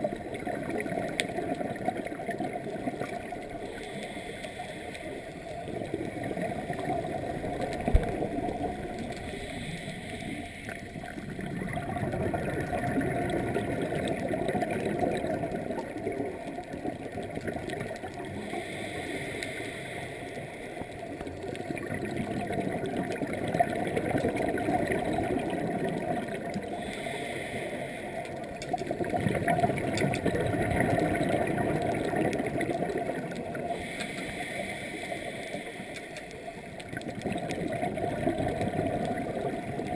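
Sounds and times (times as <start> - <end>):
exhaled bubbles burbling: 0.0 - 3.9, 5.2 - 9.4, 10.7 - 18.5, 21.0 - 27.0, 28.4 - 34.0, 36.6 - 39.9
regulator breathing hiss: 3.7 - 5.3, 9.2 - 10.9, 18.4 - 20.9, 26.8 - 28.2, 33.7 - 36.5.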